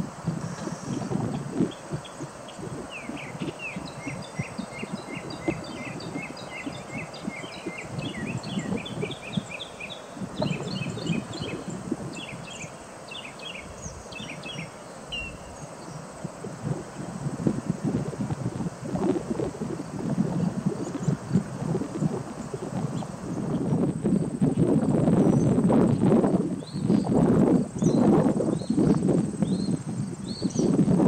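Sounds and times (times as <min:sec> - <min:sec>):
wind buffeting microphone: 0:00.0 - 0:31.0.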